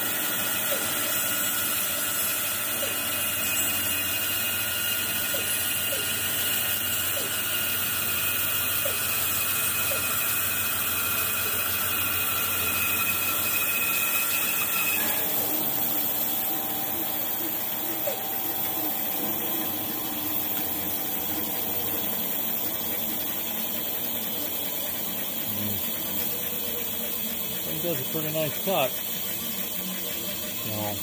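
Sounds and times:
band saw cutting wood: 0:00.0 - 0:31.0
band saw running: 0:00.0 - 0:31.0.

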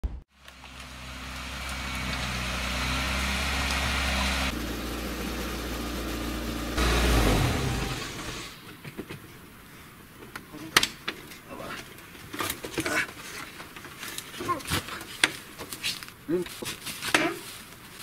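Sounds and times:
truck engine idling: 0:00.4 - 0:08.6.

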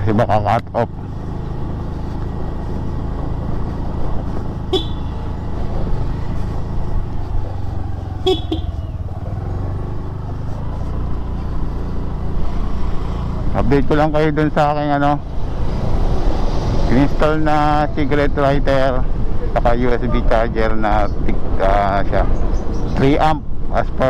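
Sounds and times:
road noise: 0:00.0 - 0:24.0
scooter engine running: 0:00.7 - 0:13.9.

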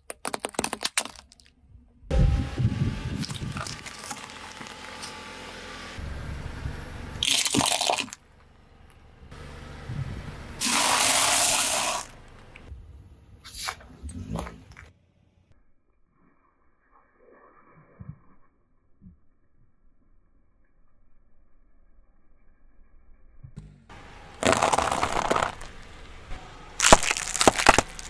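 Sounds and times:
seashells crunching: 0:00.1 - 0:01.5, 0:03.2 - 0:05.2, 0:24.4 - 0:26.0, 0:26.8 - 0:28.0
tyre crushing objects: 0:24.4 - 0:25.8, 0:26.8 - 0:28.0.

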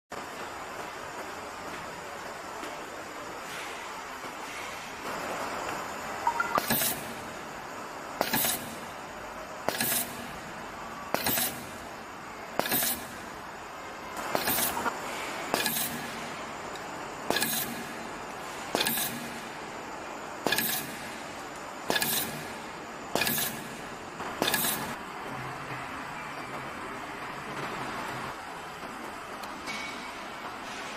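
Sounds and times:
pneumatic wire stripper clacking: 0:08.2 - 0:08.8, 0:09.7 - 0:10.2, 0:11.1 - 0:11.7, 0:12.6 - 0:13.1, 0:14.3 - 0:14.9, 0:15.5 - 0:16.1, 0:17.3 - 0:17.9, 0:18.7 - 0:19.3, 0:20.4 - 0:21.0, 0:21.9 - 0:22.4, 0:23.1 - 0:23.7, 0:24.4 - 0:25.0
air burst: 0:09.7 - 0:10.3, 0:11.2 - 0:11.7, 0:21.9 - 0:22.5.

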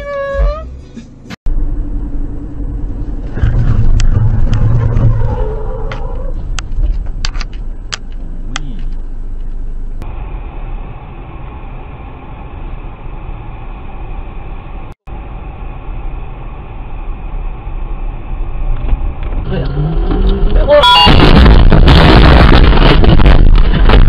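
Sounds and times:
car engine and road noise: 0:00.0 - 0:24.0.

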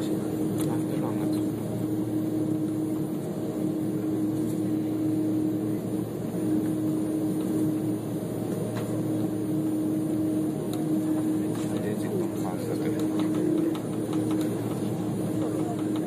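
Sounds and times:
jet cabin drone: 0:00.0 - 0:16.0
steady hum: 0:00.0 - 0:16.0.

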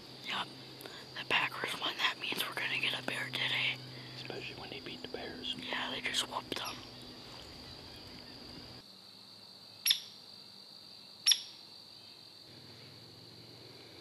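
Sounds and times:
insects droning: 0:00.0 - 0:14.0
bird call notes: 0:11.3 - 0:11.6.

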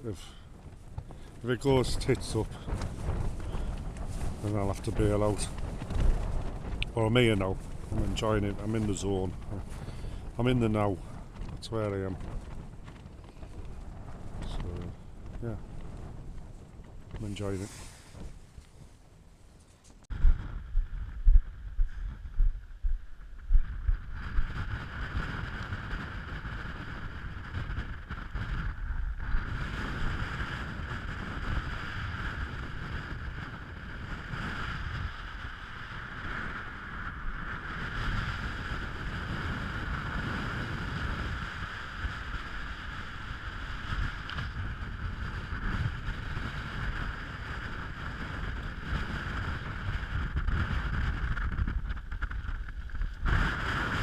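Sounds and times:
wind buffeting microphone: 0:00.0 - 0:54.0
tent fabric rustling: 0:17.5 - 0:20.1.

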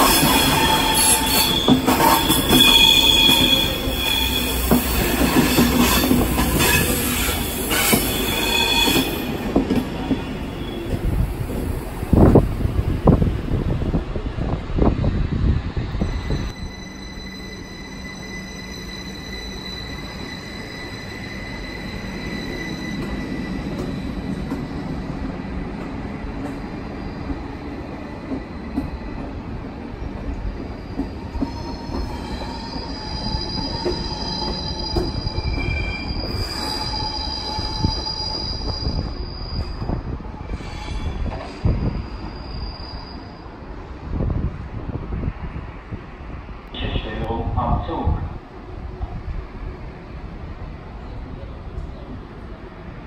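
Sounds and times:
train wheels squealing: 0:00.0 - 0:09.4, 0:15.9 - 0:25.1, 0:26.9 - 0:29.3, 0:30.1 - 0:43.9
low rail rumble: 0:00.0 - 0:53.0.

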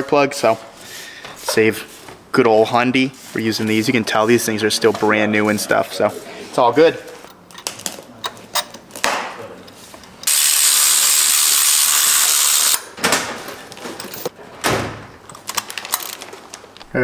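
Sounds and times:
ratchet clicking: 0:10.2 - 0:12.8.

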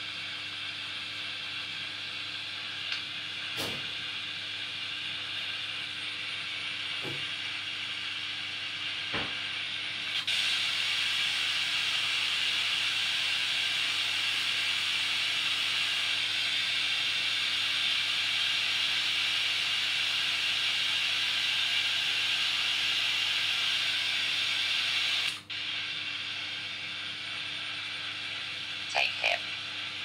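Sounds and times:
radio static hiss: 0:24.6 - 0:30.0.

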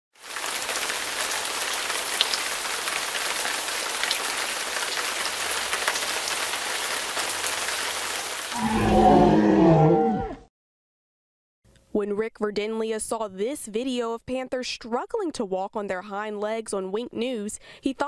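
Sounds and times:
rain-like hiss: 0:00.2 - 0:08.8.

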